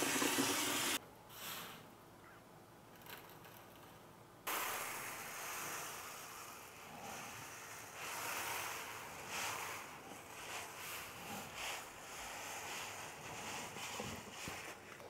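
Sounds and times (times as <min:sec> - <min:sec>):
wire coils pouring onto metal tray: 0:04.5 - 0:13.7.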